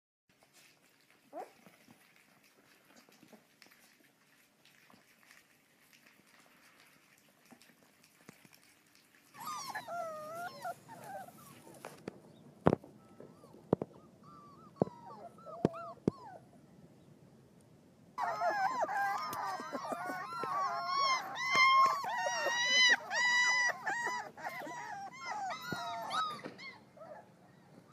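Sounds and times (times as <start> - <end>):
puppies whining and yipping: 1.3 - 1.8, 9.3 - 16.6, 18.2 - 27.9.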